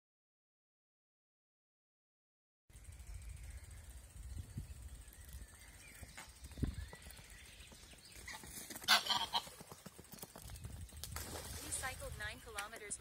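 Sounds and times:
low wind rumble: 2.7s - 9.4s, 10.3s - 13.0s
footsteps on dirt path: 5.7s - 13.0s
goose wingbeats: 8.1s - 12.7s
goose calls: 8.9s - 9.4s.

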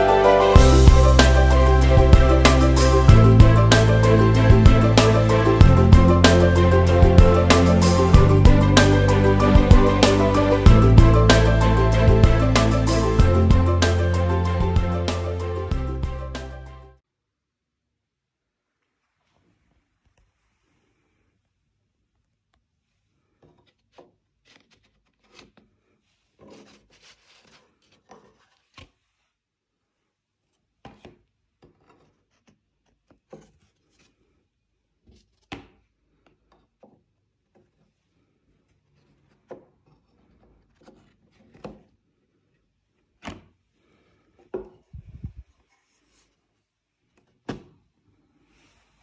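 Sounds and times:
paper and wood sliding: 23.4s - 29.4s, 30.4s - 34.4s, 38.6s - 41.9s.

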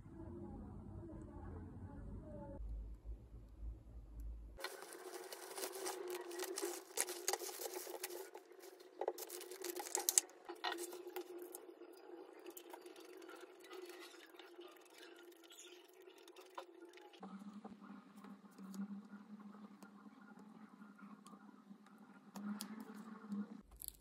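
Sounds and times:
plastic packaging rustling: 4.6s - 11.3s.

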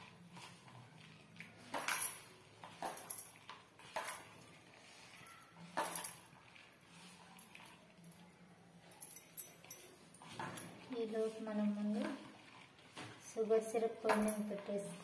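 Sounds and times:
dough squeezed in plastic bowl: 0.0s - 8.8s
bangles clinking: 1.6s - 6.6s, 7.2s - 11.0s, 14.0s - 14.6s.

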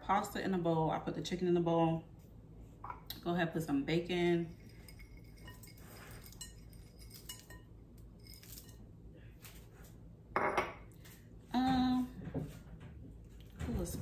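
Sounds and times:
bowl and spoon clinking: 4.5s - 8.8s
bowl knocking on counter: 10.4s - 10.8s.

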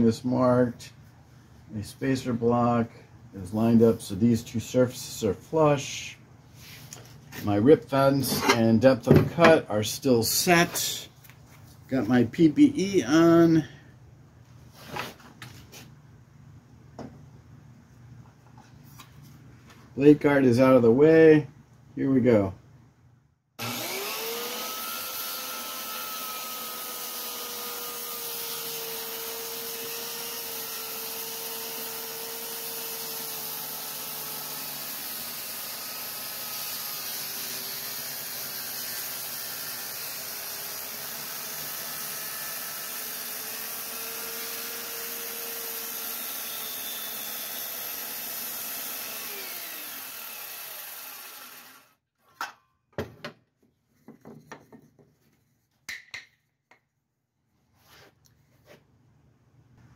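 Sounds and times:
circular saw cutting wood: 23.6s - 52.0s.

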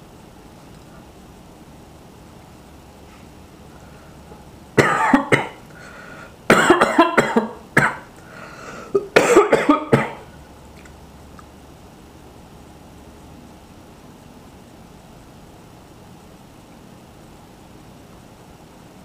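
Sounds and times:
man coughing: 4.8s - 5.6s, 6.5s - 8.1s, 8.9s - 10.3s.

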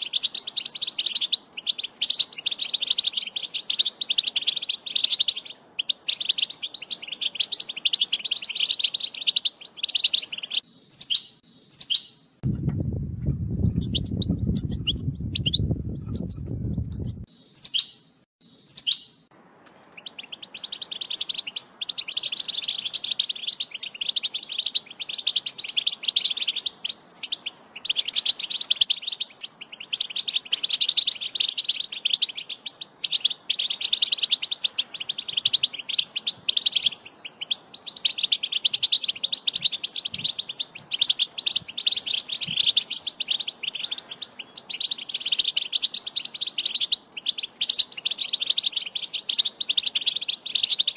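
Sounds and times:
goldfinch twittering song: 0.0s - 12.2s, 13.6s - 50.9s
scattered bird chirps: 0.0s - 12.4s, 13.4s - 50.9s
low rumble: 12.4s - 17.3s.

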